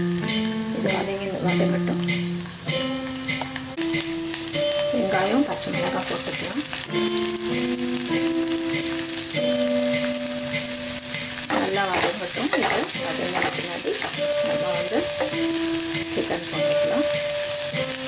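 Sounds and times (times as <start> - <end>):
onions sizzling in oil: 0.0 - 18.0
spatula stirring: 5.1 - 18.0.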